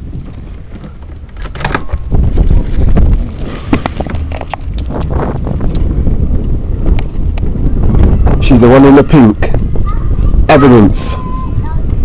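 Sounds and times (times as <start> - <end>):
handling noise: 0.0 - 5.9
wind rumble on microphone: 0.0 - 12.0.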